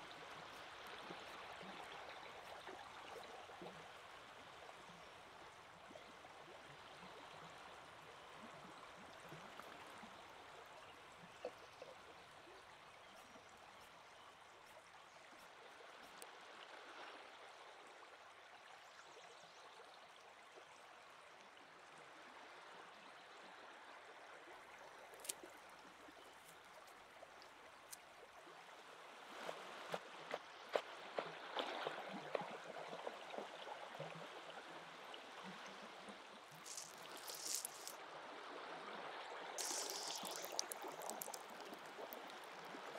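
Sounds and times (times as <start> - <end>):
river flowing: 36.3 - 38.2, 39.6 - 42.9.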